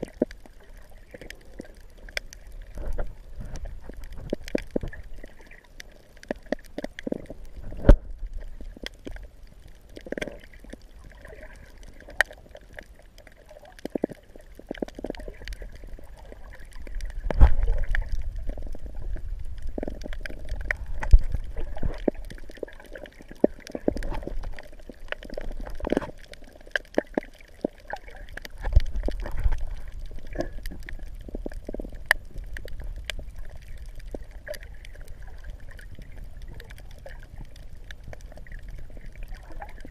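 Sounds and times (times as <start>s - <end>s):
low water surges: 0.0s - 39.9s
small clicks and pops: 0.0s - 39.9s
seawater sloshing and gurgling: 10.0s - 12.6s, 13.4s - 39.9s.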